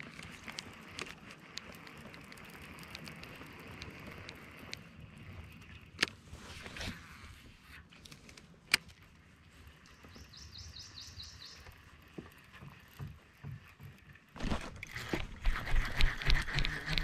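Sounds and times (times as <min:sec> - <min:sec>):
handling noise: 0:12.2 - 0:16.4.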